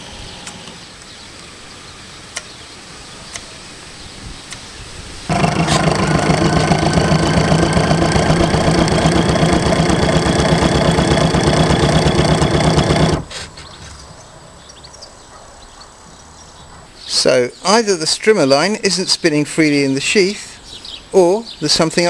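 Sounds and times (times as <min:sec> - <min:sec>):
electric boat motor buzzing: 0:05.3 - 0:13.3.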